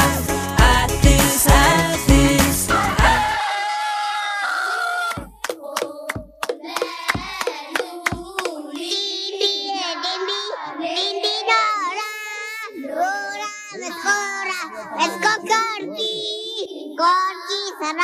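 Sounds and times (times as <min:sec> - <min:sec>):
children singing song: 0:00.0 - 0:18.0
hand claps: 0:05.1 - 0:08.9.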